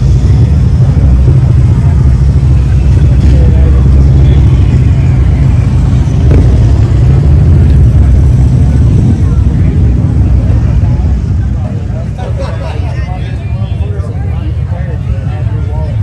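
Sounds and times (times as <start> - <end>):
faint voices: 0.0 - 16.0
motorcycle engines rumbling: 0.0 - 16.0.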